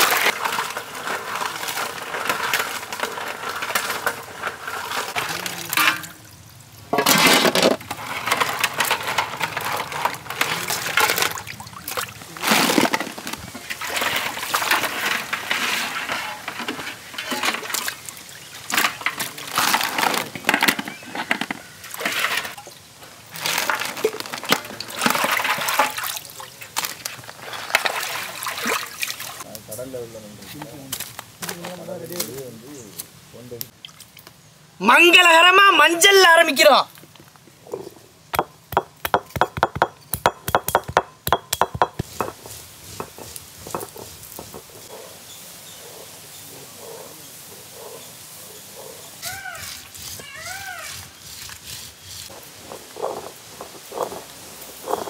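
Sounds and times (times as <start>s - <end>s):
crab shells clattering in metal bowl: 0.0s - 6.2s, 7.0s - 11.6s, 12.4s - 17.9s.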